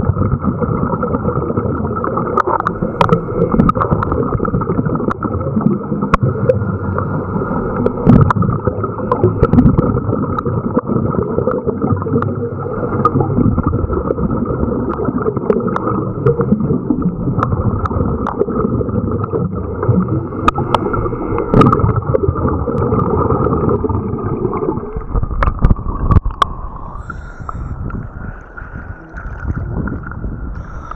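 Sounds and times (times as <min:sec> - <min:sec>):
water slopping: 0:00.0 - 0:30.9
muffled underwater hiss: 0:06.0 - 0:10.1, 0:11.7 - 0:13.6, 0:19.8 - 0:22.2, 0:24.4 - 0:30.9.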